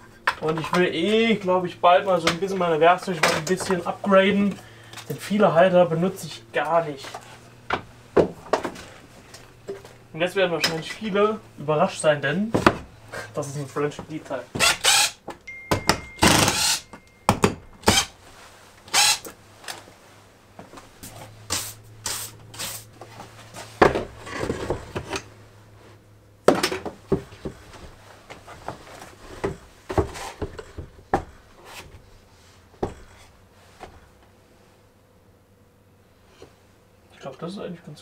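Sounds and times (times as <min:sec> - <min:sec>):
wooden knocks and clunks: 0:12.5 - 0:12.9
cordless drill burst: 0:14.6 - 0:15.2, 0:16.2 - 0:16.8, 0:18.9 - 0:19.3.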